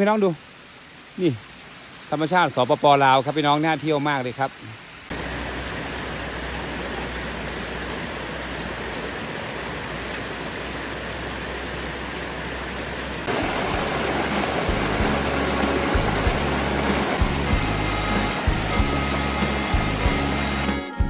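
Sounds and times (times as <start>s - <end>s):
waterfall and stream rushing: 0.0s - 20.8s
background music: 13.6s - 21.0s.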